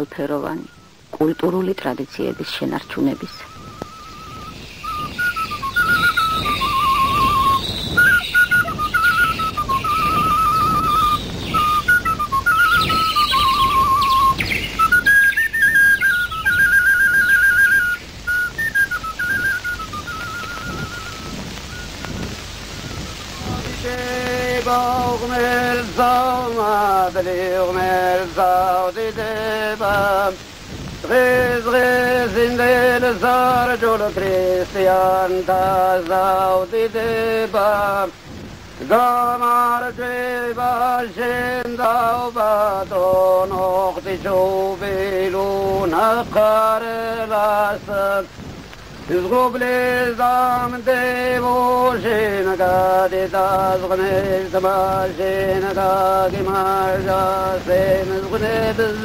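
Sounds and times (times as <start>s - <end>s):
film soundtrack hiss: 0.0s - 59.0s
men singing in parts: 23.4s - 48.4s, 49.0s - 59.0s.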